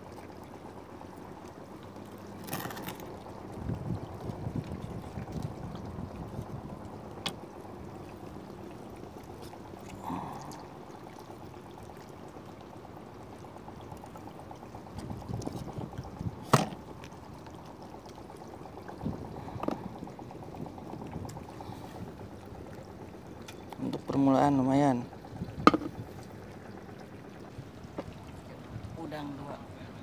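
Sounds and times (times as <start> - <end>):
water lapping and trickling: 0.0 - 30.0
sharp knocks on kayak: 16.4 - 16.8, 25.6 - 26.0.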